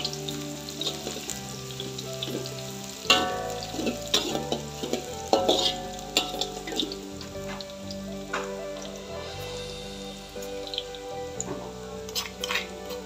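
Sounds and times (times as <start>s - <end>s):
greens sizzling in oil: 0.0s - 13.0s
spatula scraping wok: 0.0s - 13.0s
spatula clanking on wok: 0.8s - 8.6s, 10.6s - 13.0s.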